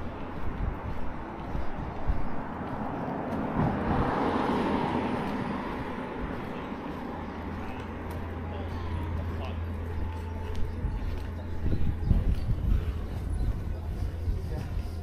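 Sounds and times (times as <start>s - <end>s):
car passing by: 0.0s - 10.3s.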